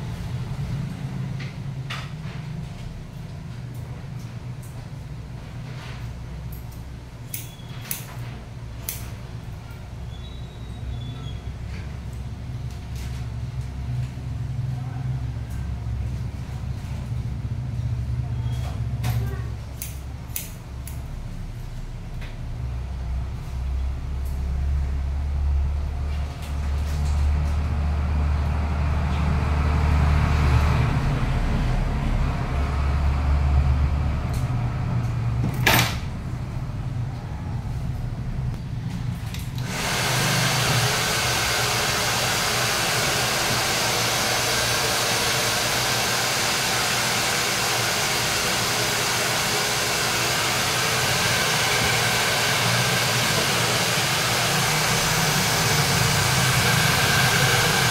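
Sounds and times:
low rumble: 24.6 - 35.4
hair dryer blowing: 39.6 - 57.9.

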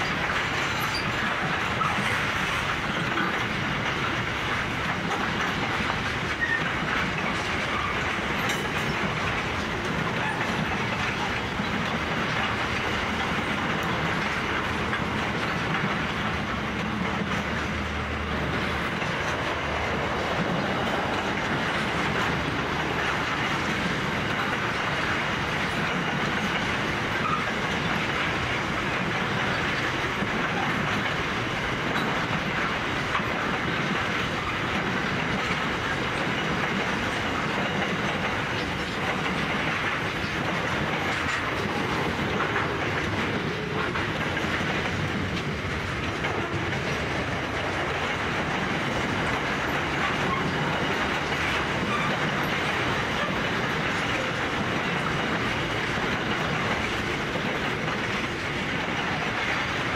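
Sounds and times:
faint rail clicks: 0.0 - 59.9
freight train wheels rolling: 0.0 - 59.9.

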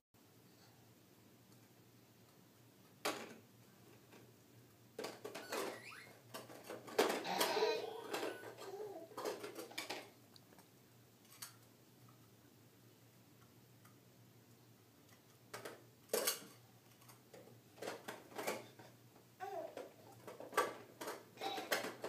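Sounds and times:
plastic toys clicking and knocking: 3.0 - 3.4, 5.0 - 10.1, 15.1 - 18.9, 19.5 - 22.0.

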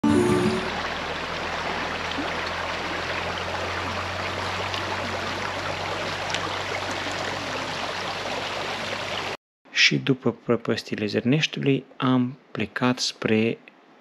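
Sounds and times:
stream water flowing: 0.0 - 9.4.

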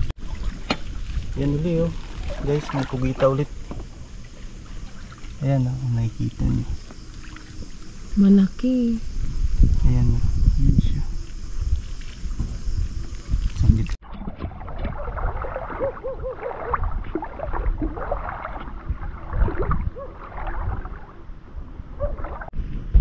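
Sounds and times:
seawater sloshing and gurgling: 0.1 - 8.1, 13.2 - 22.6.

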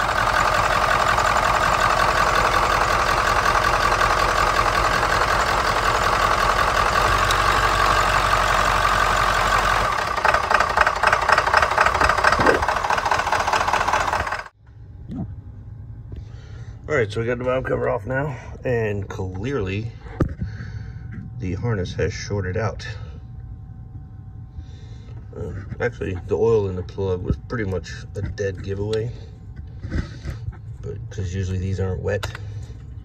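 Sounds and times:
diesel engine idling: 0.0 - 14.6.

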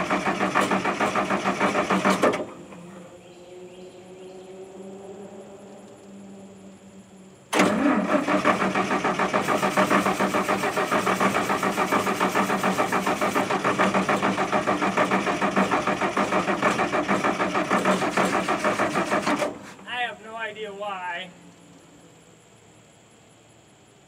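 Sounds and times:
engine cranking on starter: 0.0 - 3.3, 7.5 - 19.9.

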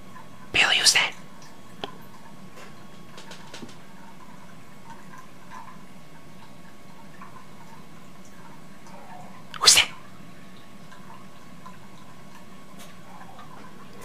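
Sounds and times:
dog sneezing: 9.6 - 10.0.

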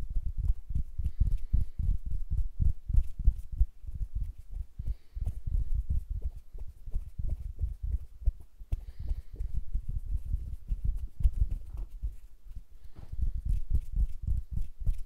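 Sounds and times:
fingers brushing a microphone: 0.0 - 15.0
soft low thumps: 0.0 - 15.0
light skin rustles: 4.2 - 15.0.

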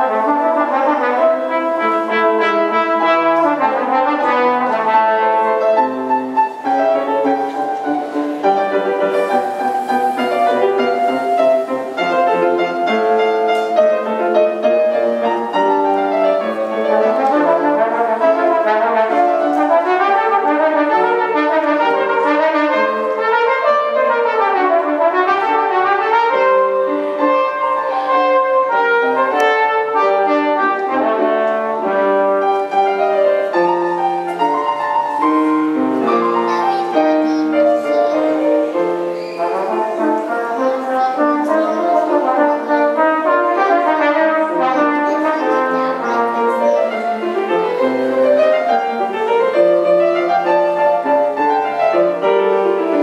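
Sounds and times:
brass instrument melody: 0.0 - 53.0
grand piano: 0.0 - 53.0.

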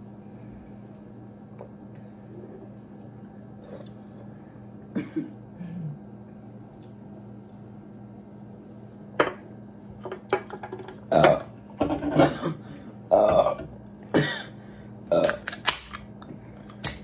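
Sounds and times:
loud burps: 11.1 - 14.5.

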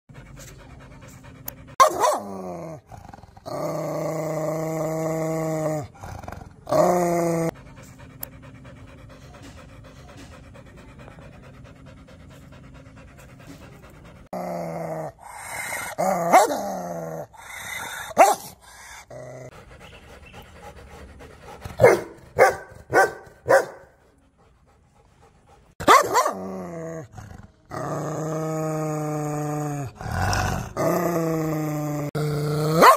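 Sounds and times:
dog growling and barking: 1.4 - 9.1, 14.0 - 19.6, 25.7 - 32.9.

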